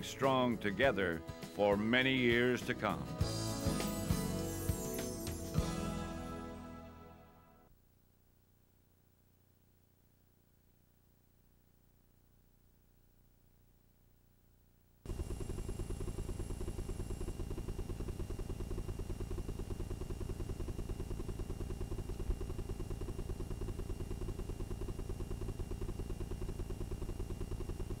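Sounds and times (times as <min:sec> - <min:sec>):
videotape low buzz with flutter: 0:07.7 - 0:28.0.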